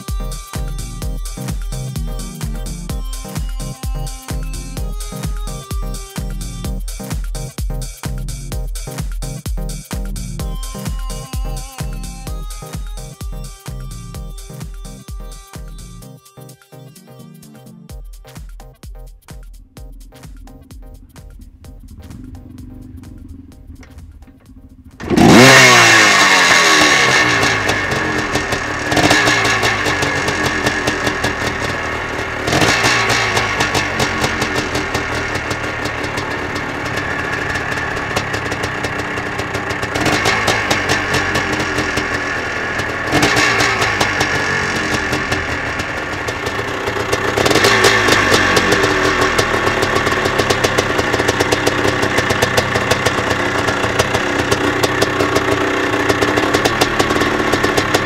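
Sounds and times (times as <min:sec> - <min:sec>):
motorbike engine revving: 0:00.0 - 0:06.9, 0:19.6 - 0:58.0.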